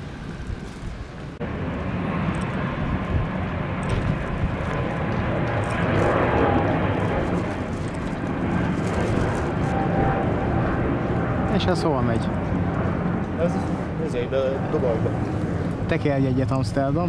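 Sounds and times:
jet engines at takeoff thrust: 0.0s - 17.0s.

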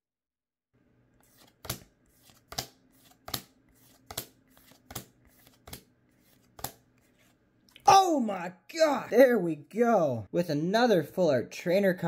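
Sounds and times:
cards flicking against cards: 1.2s - 7.4s.

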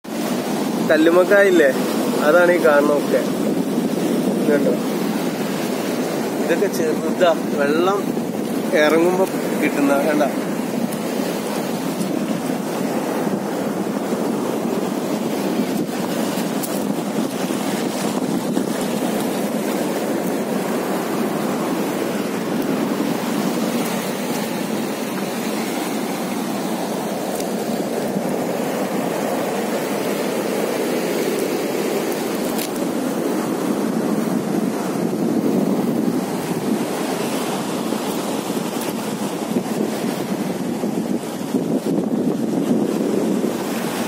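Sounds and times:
sea water washing over rocks: 0.0s - 44.0s.

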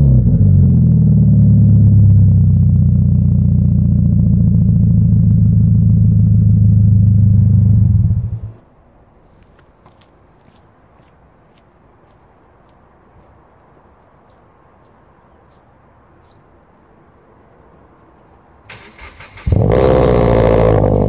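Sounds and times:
car engine idling: 0.8s - 8.6s.

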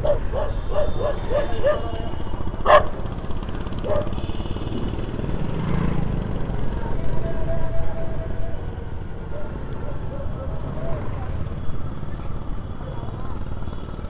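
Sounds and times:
dog barking: 0.0s - 3.1s, 3.8s - 4.3s, 9.2s - 10.6s
scooter wind and road rumble: 0.0s - 14.0s.

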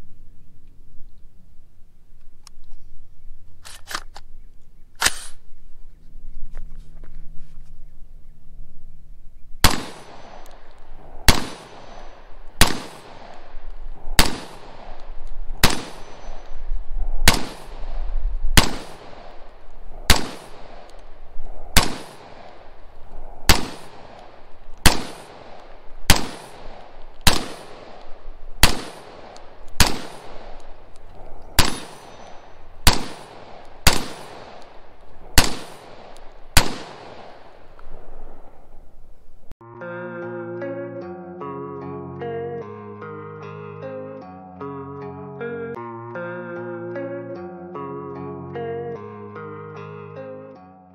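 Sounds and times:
rifle shots with echo: 9.6s - 16.6s, 17.2s - 38.6s.

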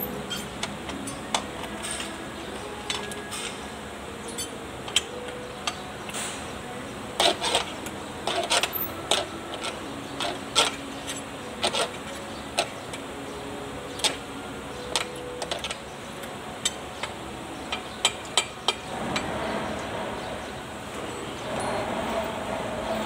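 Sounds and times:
hand wrench clicking on bolts: 0.0s - 3.6s, 7.2s - 13.0s, 14.8s - 18.9s
rushing noise: 18.9s - 23.0s.

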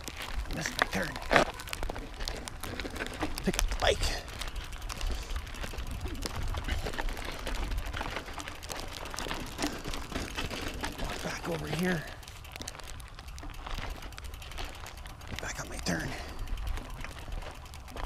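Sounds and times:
wind rumble on microphone: 0.0s - 11.2s
bike clicks and rattles: 0.0s - 18.0s
bike tyres crunching over stones: 0.0s - 18.0s.

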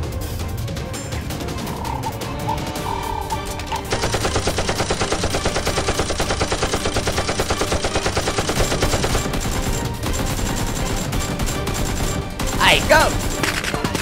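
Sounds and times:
toy blaster firing: 3.8s - 14.0s
automatic gunfire: 3.9s - 14.0s.

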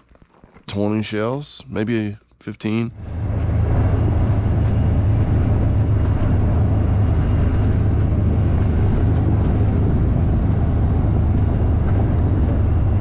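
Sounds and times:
engine and road noise rumble: 2.9s - 13.0s.

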